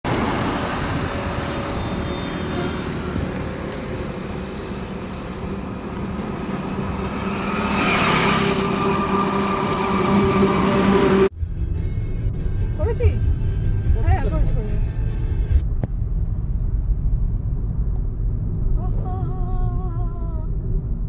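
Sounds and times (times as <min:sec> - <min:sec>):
highway traffic passing: 0:00.0 - 0:11.4
vehicle engine hum: 0:00.0 - 0:21.0.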